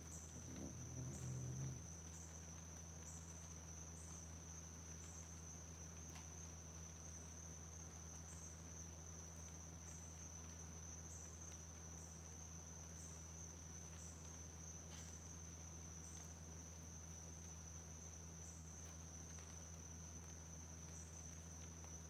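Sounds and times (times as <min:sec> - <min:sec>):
higher insect pulse: 0:00.0 - 0:04.1
insect chorus drone: 0:00.0 - 0:22.0
low steady hum: 0:00.0 - 0:22.0.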